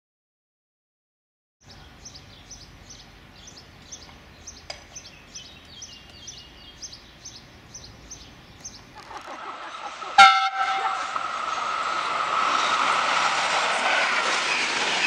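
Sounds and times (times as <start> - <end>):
small bird chirping: 1.6 - 9.3.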